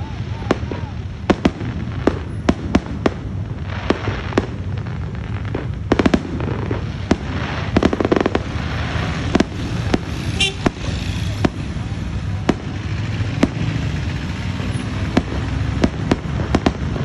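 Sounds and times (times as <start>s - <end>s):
fireworks bangs: 0.0s - 17.0s
fireworks crackling: 0.0s - 17.0s.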